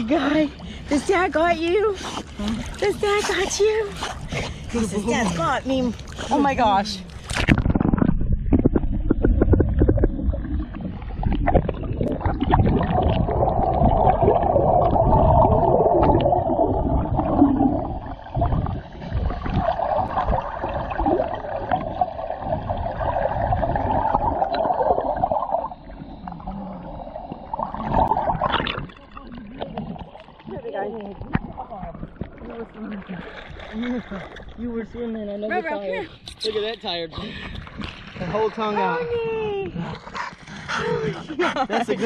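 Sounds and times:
underwater gurgling and sloshing: 0.0s - 42.0s
dull underwater knocks: 7.3s - 14.0s.

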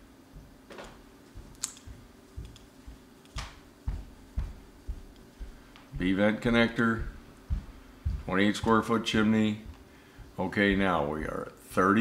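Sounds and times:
faint steady hum: 0.0s - 12.0s
keyboard and mouse clicks: 1.5s - 3.6s.

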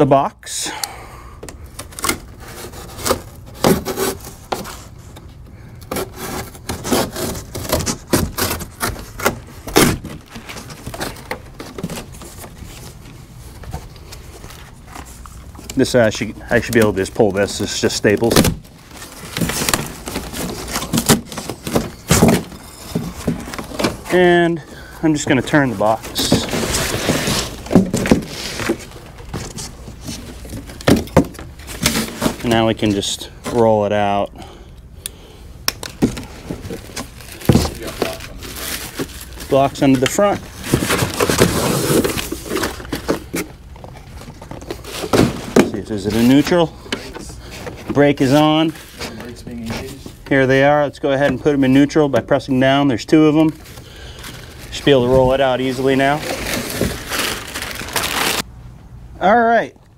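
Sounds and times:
cardboard scraping and rustling: 1.8s - 5.2s, 5.9s - 33.6s, 35.8s - 50.3s, 53.4s - 58.4s
box cutter cutting cardboard: 2.1s - 4.7s, 5.9s - 10.2s.

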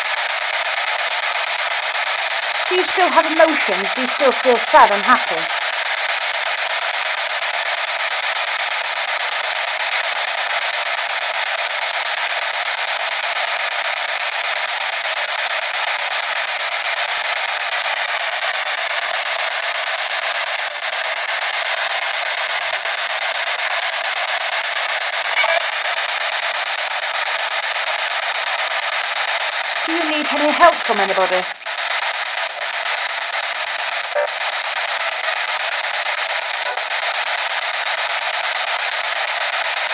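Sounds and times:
radio static hiss: 0.0s - 39.9s
brief snatch of radio sound: 34.1s - 34.4s.

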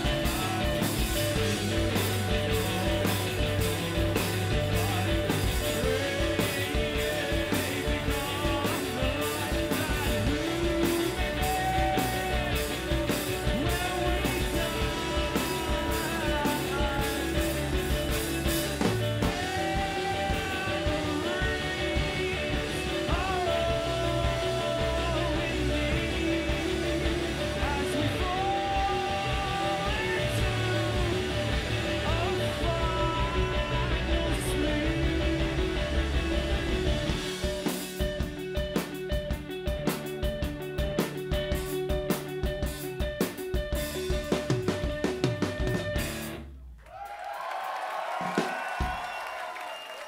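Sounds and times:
person singing: 0.0s - 38.2s
electric guitar: 0.0s - 46.6s
bass guitar: 0.0s - 47.1s
drum kit: 0.0s - 50.0s.

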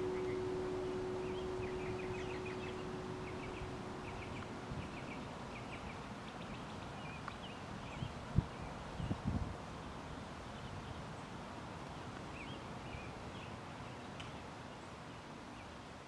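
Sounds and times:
vibraphone note ringing: 0.0s - 4.8s.

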